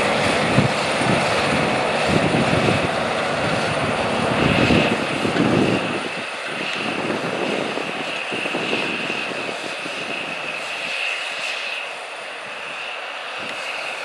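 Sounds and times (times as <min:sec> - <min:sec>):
steady high whine: 0:00.0 - 0:14.0
tractor diesel engine under load: 0:00.0 - 0:14.0.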